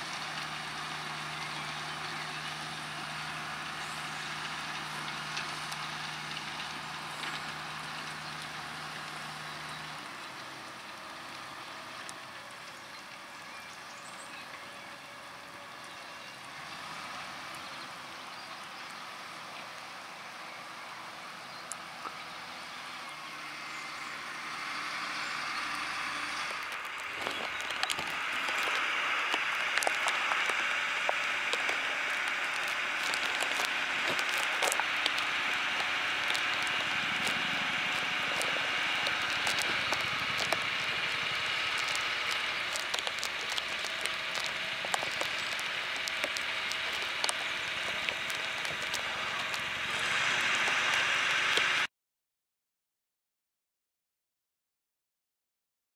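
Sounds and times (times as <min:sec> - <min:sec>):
tractor working under load: 0:00.0 - 0:51.9
rain pattering on microphone: 0:26.4 - 0:51.9.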